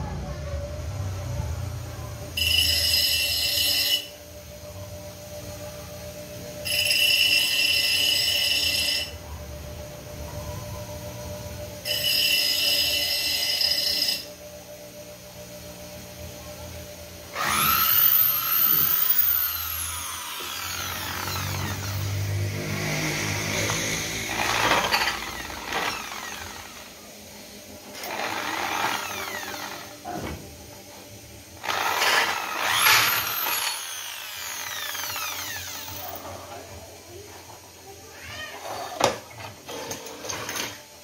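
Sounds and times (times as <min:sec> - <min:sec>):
drill cutting through metal: 0:02.4 - 0:04.1, 0:06.6 - 0:09.2, 0:11.8 - 0:14.4, 0:17.3 - 0:27.1, 0:27.8 - 0:30.3, 0:31.6 - 0:36.6
electric drill whining: 0:06.6 - 0:09.2, 0:11.8 - 0:14.3, 0:17.3 - 0:27.0, 0:27.8 - 0:30.2, 0:31.6 - 0:36.6.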